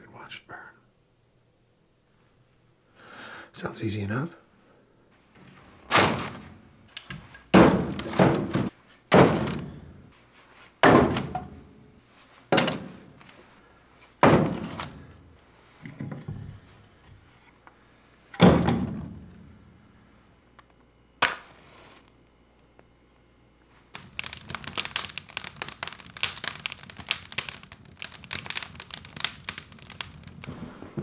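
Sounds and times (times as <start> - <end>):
firewood thunking on metal grate: 7.5 - 9.7, 10.8 - 11.5, 14.2 - 15.0
match strike: 23.9 - 30.6.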